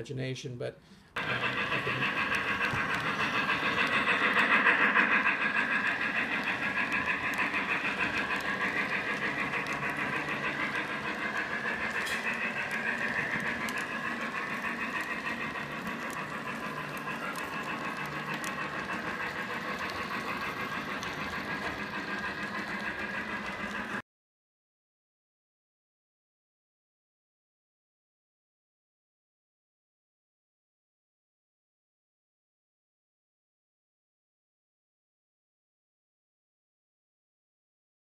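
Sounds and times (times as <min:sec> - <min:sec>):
model train running on track: 0:01.2 - 0:24.0
wheels clicking on track: 0:01.2 - 0:24.0.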